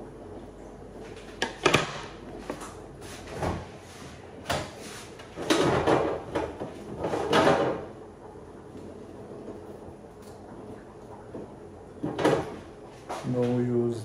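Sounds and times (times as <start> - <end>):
items clattering on shelves: 1.2 - 7.9.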